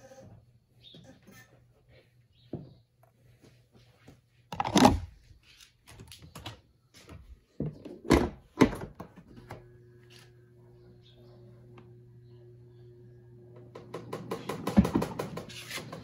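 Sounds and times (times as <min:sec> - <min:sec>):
spin dryer motor humming: 0:09.5 - 0:16.0.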